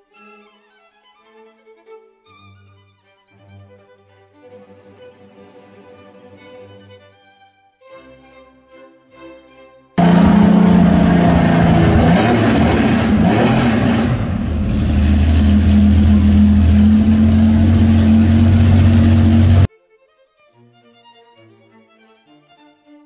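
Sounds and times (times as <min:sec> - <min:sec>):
race engine running: 0:10.0 - 0:19.7.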